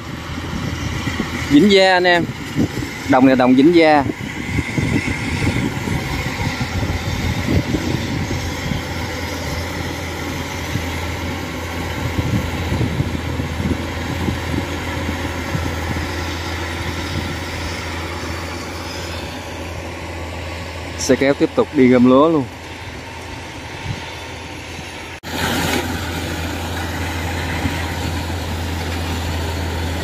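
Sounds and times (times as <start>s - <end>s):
combine harvester running: 0.0s - 30.0s.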